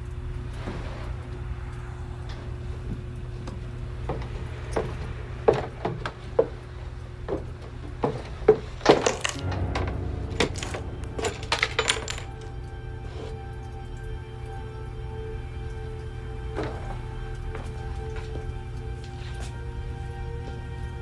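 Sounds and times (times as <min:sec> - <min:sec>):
steady low hum: 0:09.4 - 0:20.9.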